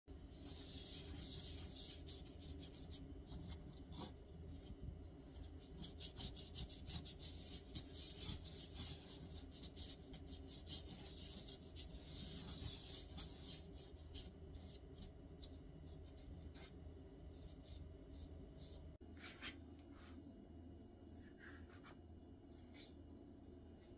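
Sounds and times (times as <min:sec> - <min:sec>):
paintbrush scrubbing on paper: 0:00.3 - 0:04.8, 0:05.4 - 0:15.6.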